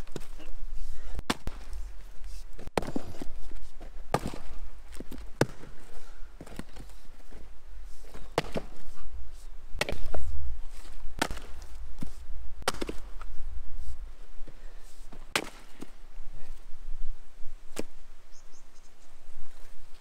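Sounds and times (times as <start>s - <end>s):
firewood being chopped: 0.0s - 0.5s, 1.1s - 1.8s, 2.6s - 8.9s, 9.8s - 13.3s, 15.1s - 16.0s.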